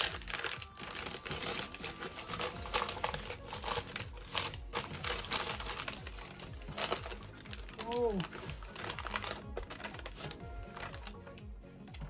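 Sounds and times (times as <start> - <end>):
baking paper crinkling: 0.0 - 11.4.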